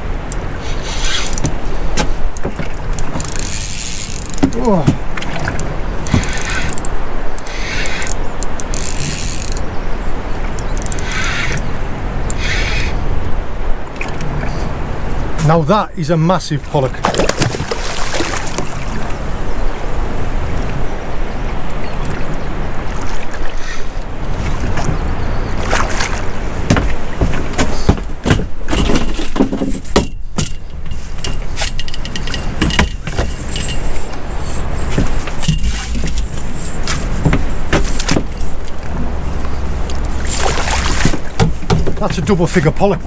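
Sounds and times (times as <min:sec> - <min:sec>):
boat engine hum: 0:00.0 - 0:43.0
knocks and clatter on board: 0:01.1 - 0:06.9, 0:17.0 - 0:17.8, 0:25.7 - 0:33.7, 0:34.9 - 0:38.5, 0:40.9 - 0:42.4.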